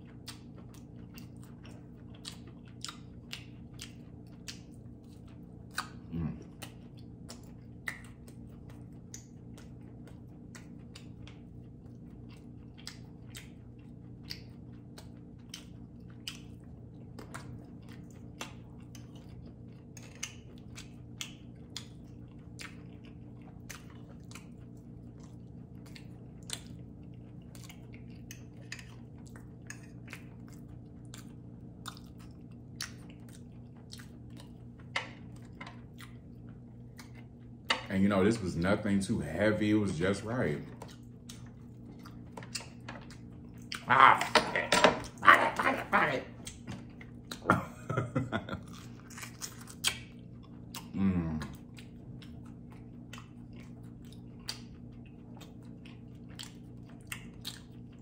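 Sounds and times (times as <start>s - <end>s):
person chewing: 0.0s - 38.7s, 39.3s - 58.0s
wet mouth clicks and smacks: 6.6s - 9.8s.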